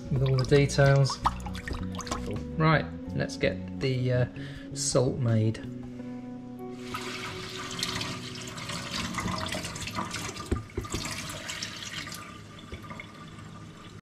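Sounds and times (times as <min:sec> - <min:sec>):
water pouring into a steel sink: 0:00.0 - 0:02.4, 0:06.8 - 0:14.0.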